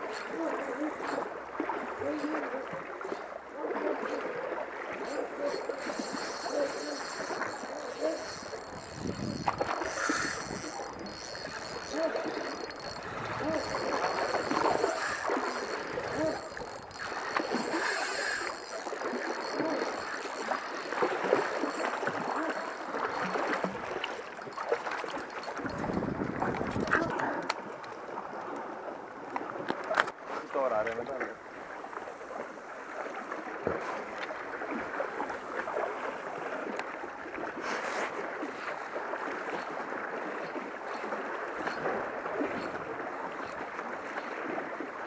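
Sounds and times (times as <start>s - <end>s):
popper lure splashing on water: 2.2s - 28.0s.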